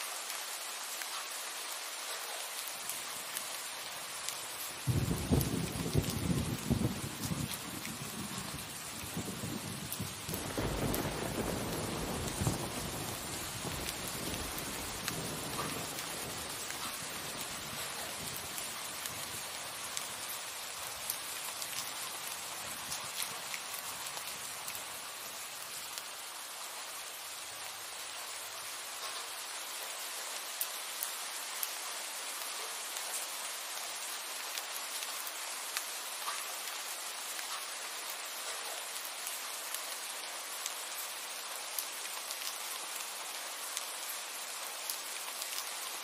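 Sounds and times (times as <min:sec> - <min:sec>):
steady rain falling: 0:00.0 - 0:46.0
thunder rumbling: 0:04.9 - 0:19.4.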